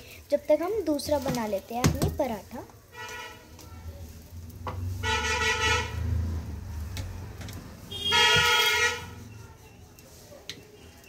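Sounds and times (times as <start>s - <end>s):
vehicle horn honking: 3.0s - 3.4s, 5.0s - 6.0s, 7.9s - 9.2s.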